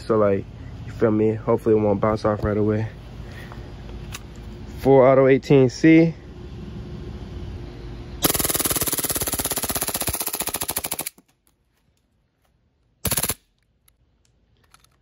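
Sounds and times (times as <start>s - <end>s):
airsoft pistol firing bursts: 8.2s - 11.2s, 13.0s - 13.4s.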